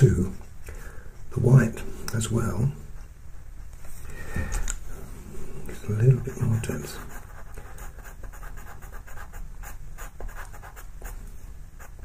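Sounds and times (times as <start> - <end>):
pencil scratching on paper: 0.0 - 0.6, 1.2 - 3.8, 6.2 - 11.2, 11.8 - 12.0.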